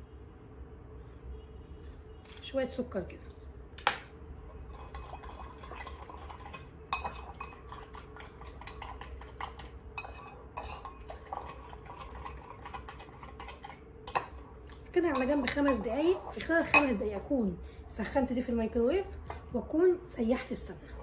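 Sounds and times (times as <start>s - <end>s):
spoon clinking against bowl: 6.9s - 7.7s, 10.0s - 11.1s, 15.1s - 17.3s.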